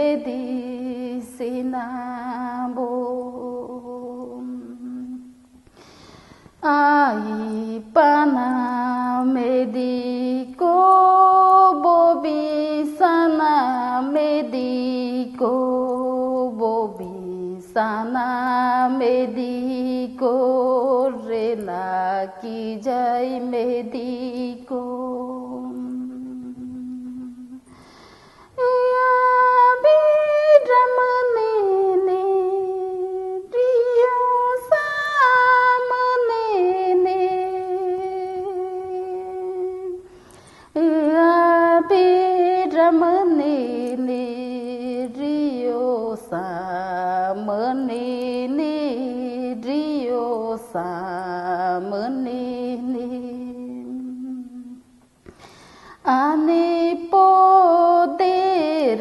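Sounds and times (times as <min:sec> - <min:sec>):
woman humming a melody: 0:23.7 - 0:27.7.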